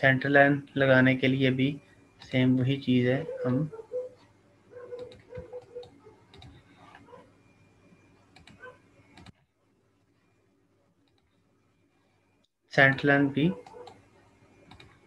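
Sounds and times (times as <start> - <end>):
computer mouse clicks: 4.9 - 7.0, 8.3 - 9.4, 11.0 - 11.3, 14.6 - 15.0.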